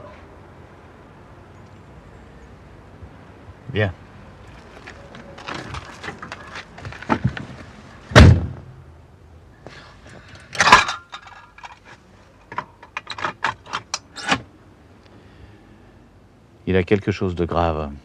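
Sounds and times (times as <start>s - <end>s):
rustle: 0.0s - 18.0s.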